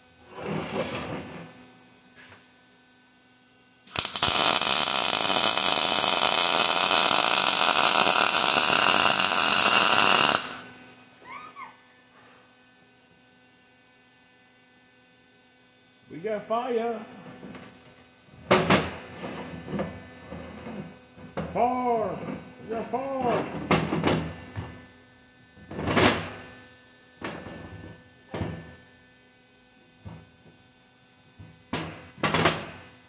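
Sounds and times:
welder arc crackling hiss: 3.9s - 10.8s.

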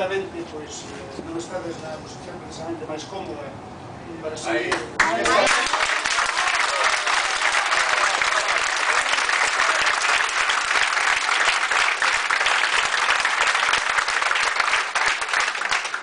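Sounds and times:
audience applauding: 5.0s - 16.0s.

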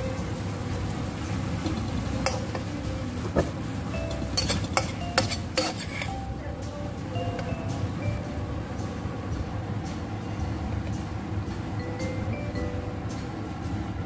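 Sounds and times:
low sizzle: 0.0s - 14.0s
metal spatula scraping a wok: 1.5s - 2.8s, 4.0s - 6.3s.

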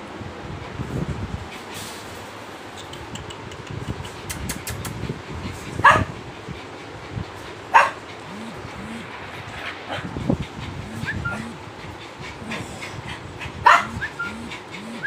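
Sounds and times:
steady low background noise: 5.1s - 15.0s.

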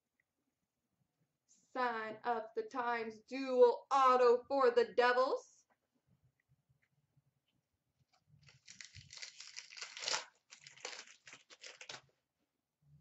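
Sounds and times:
card pack wrapper tearing: 8.4s - 12.1s.

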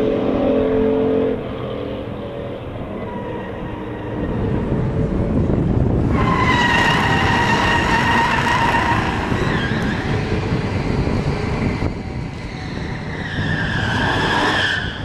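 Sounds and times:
car engines running hard: 0.0s - 15.0s
high steady squealing tone: 6.1s - 15.0s.

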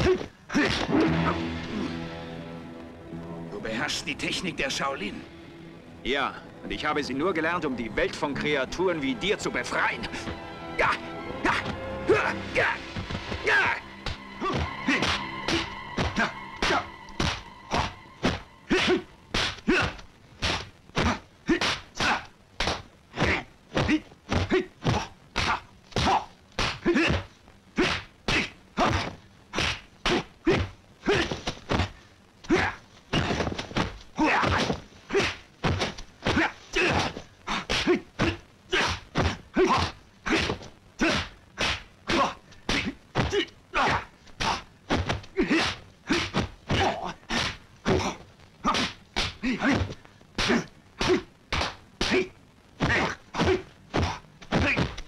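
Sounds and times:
punch and block impacts: 18.2s - 27.2s, 32.6s - 55.0s.

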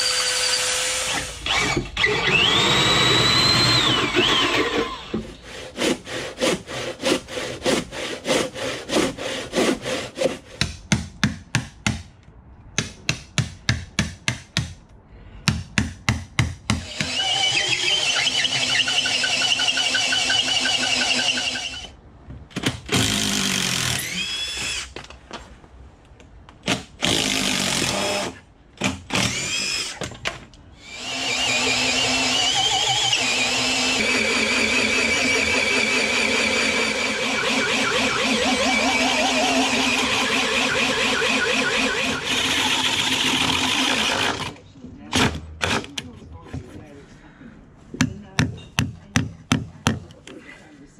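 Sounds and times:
power drill boring through wood: 0.0s - 5.8s, 16.8s - 21.9s, 22.9s - 24.9s, 27.0s - 28.4s, 29.1s - 30.0s, 30.8s - 44.6s.

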